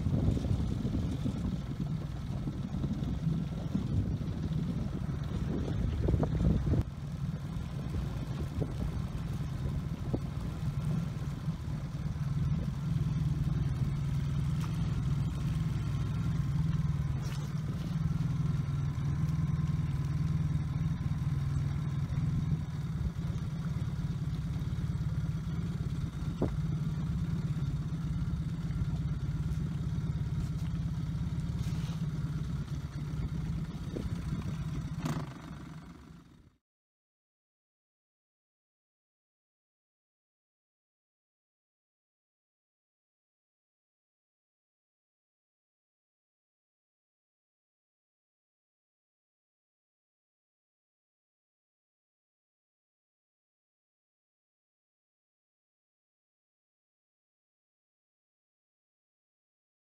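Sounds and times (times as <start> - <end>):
motorboat engine running: 0.0 - 36.6.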